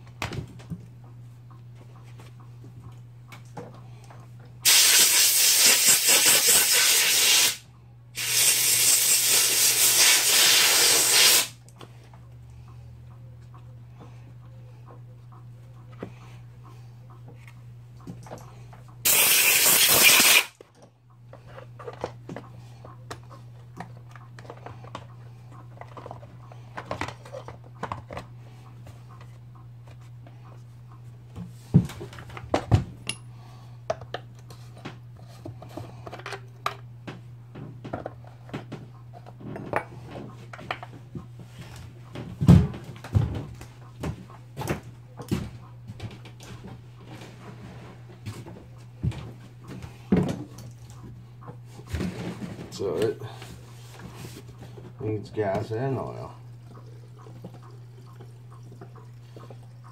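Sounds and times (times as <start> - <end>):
loud hiss: 4.6 - 7.6, 8.2 - 11.6, 19.1 - 20.5
steady low hum: 11.5 - 19.1, 20.5 - 59.9.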